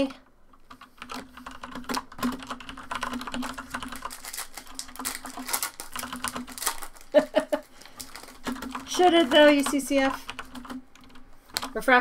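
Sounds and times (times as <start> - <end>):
wrapper tearing and crinkling: 3.3 - 8.8.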